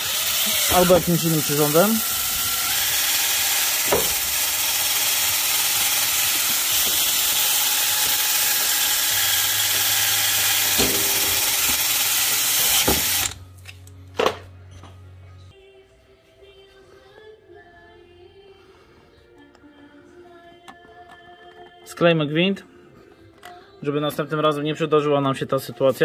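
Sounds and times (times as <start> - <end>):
drill spinning brush wheel: 0.0 - 13.4.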